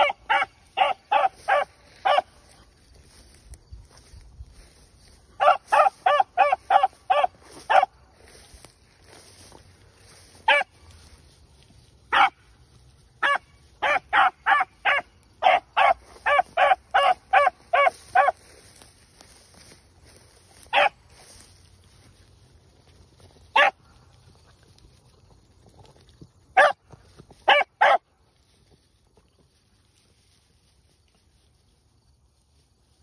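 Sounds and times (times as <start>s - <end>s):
dog barking: 0.0s - 2.4s, 5.4s - 7.9s, 10.5s - 10.7s, 12.1s - 12.4s, 13.2s - 18.4s, 20.7s - 21.0s, 23.5s - 23.8s, 26.6s - 26.8s, 27.5s - 28.0s.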